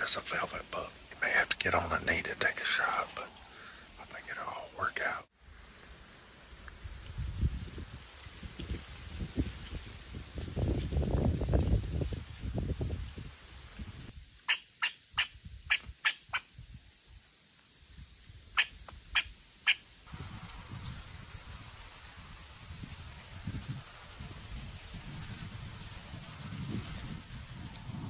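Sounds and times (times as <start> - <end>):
high insect whine: 5.9 - 28.0
cricket-like chirp: 6.6 - 28.0.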